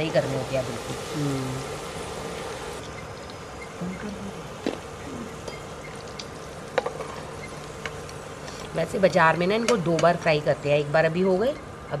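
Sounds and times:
fries sizzling in hot oil: 0.0 - 2.9.

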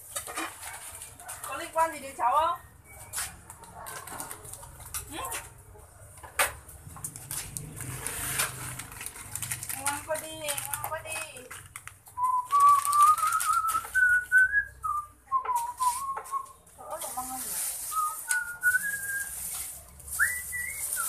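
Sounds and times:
person whistling a tune: 12.2 - 16.6, 17.9 - 19.4, 20.2 - 21.0.

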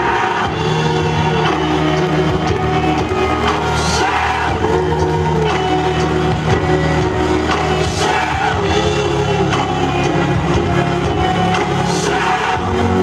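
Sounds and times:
recorded music with singing: 0.0 - 13.0.

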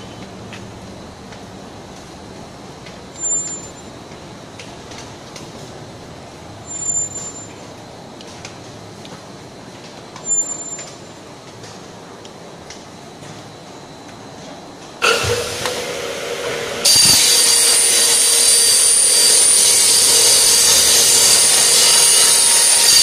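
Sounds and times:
production line machine noise: 0.0 - 23.0
loud high-pitched hiss: 15.0 - 23.0.

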